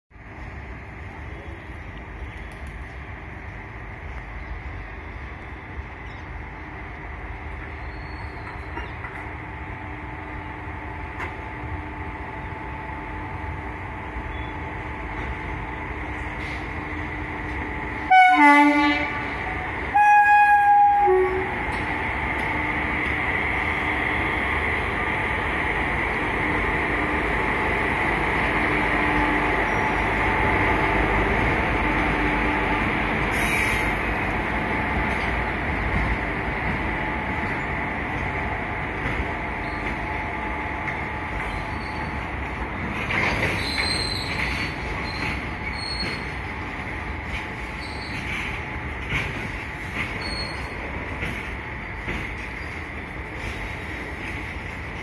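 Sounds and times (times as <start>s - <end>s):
train wheels rumbling on track: 0.1s - 55.0s
locomotive horn: 18.0s - 21.6s.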